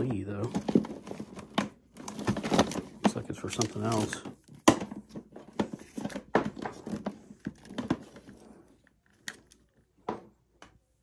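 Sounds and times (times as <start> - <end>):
cords and plugs rustling and clacking: 0.0 - 10.8.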